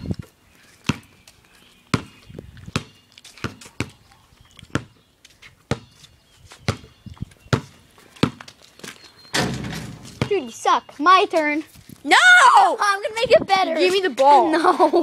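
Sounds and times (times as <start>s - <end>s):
basketball bouncing on concrete: 0.8s - 1.1s, 1.9s - 4.0s, 4.7s - 5.0s, 5.7s - 5.9s, 6.6s - 8.5s, 9.4s - 10.6s.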